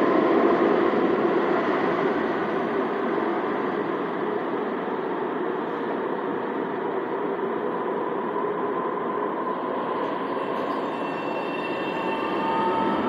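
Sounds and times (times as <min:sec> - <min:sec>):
train equipment humming: 0:00.1 - 0:13.0
faint whine: 0:03.5 - 0:13.0.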